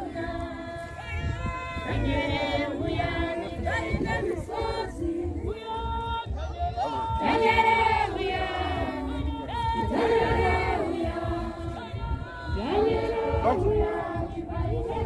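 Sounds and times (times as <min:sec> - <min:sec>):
congregation singing a hymn: 0:00.0 - 0:15.0.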